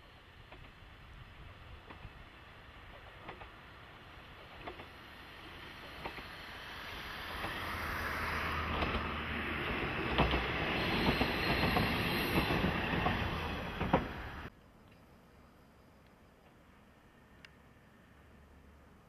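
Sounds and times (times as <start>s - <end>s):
diesel railcar engine drone: 0.0s - 19.0s
wheels clicking over rail joints: 0.4s - 6.4s, 7.3s - 7.7s, 8.6s - 14.5s.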